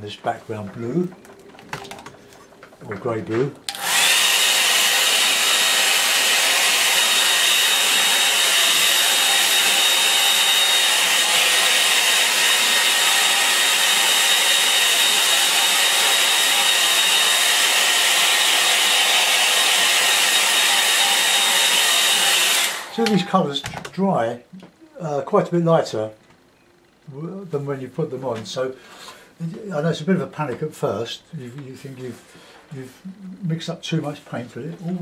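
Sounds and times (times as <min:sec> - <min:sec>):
hair dryer blowing: 0:03.7 - 0:23.4.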